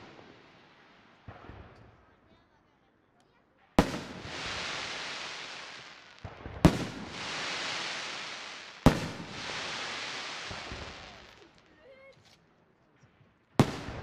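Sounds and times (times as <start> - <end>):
firework shells bursting: 3.8 - 11.4
long hissing tail: 7.0 - 11.3.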